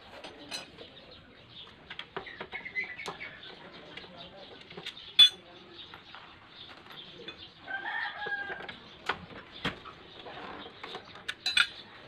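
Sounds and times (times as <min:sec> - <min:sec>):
metal clicks of tools and screws: 0:11.3 - 0:11.8.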